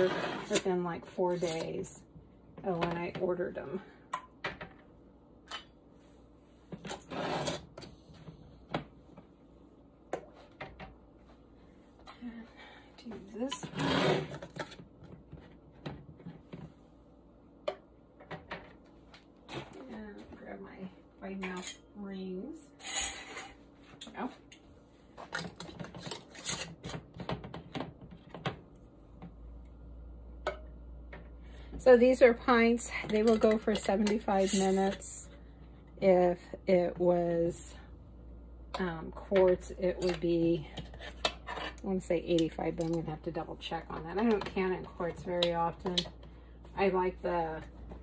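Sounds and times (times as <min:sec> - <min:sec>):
glass jar scraping on cooktop: 0:22.8 - 0:23.6.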